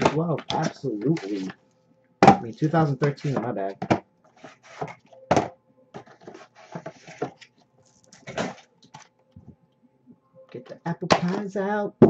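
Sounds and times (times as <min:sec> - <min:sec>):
plastic crackles: 0:06.0 - 0:09.5
plastic wrapping crinkling: 0:06.0 - 0:09.5.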